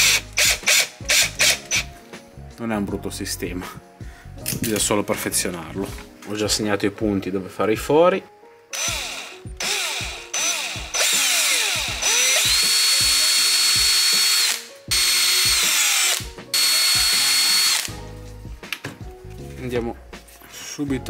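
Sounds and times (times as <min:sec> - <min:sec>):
cordless drill whining: 0:00.0 - 0:01.9, 0:08.8 - 0:18.0.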